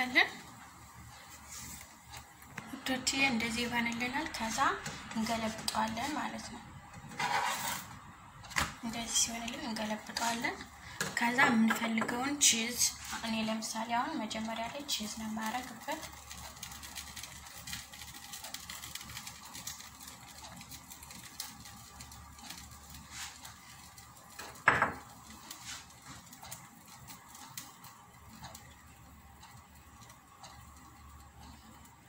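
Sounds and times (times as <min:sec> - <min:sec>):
grated cheese pattering: 0:12.3 - 0:32.0.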